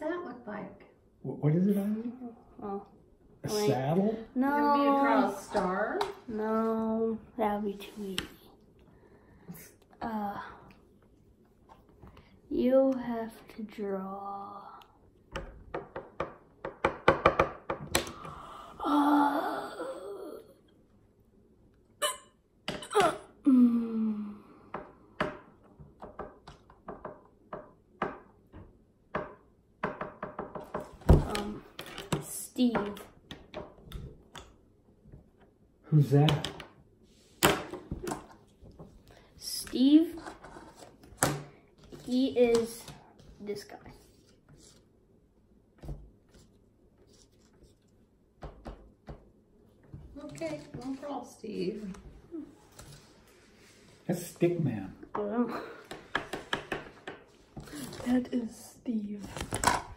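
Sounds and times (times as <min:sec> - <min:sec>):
person's vocal noises: 0:18.1 - 0:20.6.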